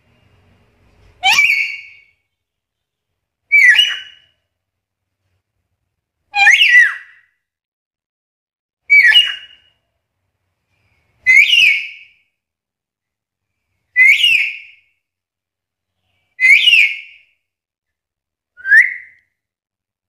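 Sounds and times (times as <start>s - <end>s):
parrot whistle-like calls: 1.2s - 2.1s, 3.5s - 4.2s, 6.4s - 7.2s, 8.9s - 9.6s, 11.2s - 12.1s, 14.0s - 14.7s, 16.4s - 17.2s, 18.6s - 19.2s.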